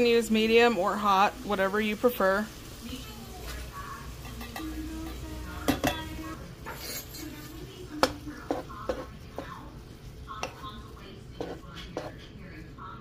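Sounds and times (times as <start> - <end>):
spoon scraping a pan: 3.5 - 12.9.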